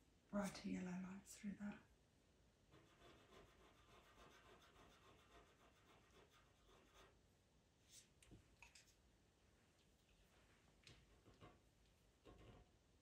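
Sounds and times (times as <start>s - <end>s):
pencil scratching on paper: 2.7s - 7.2s, 11.1s - 12.7s.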